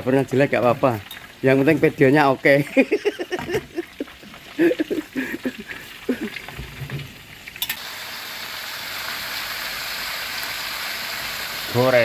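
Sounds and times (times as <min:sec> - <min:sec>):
food deep-frying in hot oil: 0:00.0 - 0:12.0.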